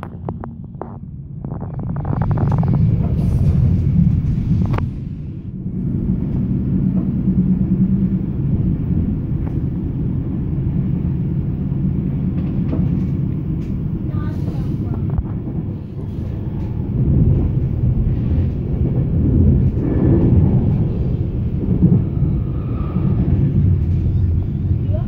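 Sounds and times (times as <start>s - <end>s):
train rumbling on track: 0.0s - 25.0s.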